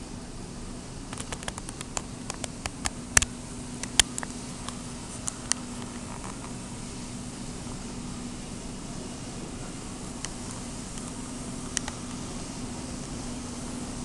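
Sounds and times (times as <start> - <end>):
steady low hum: 0.0 - 14.0
sharp clicks and taps: 1.1 - 6.4.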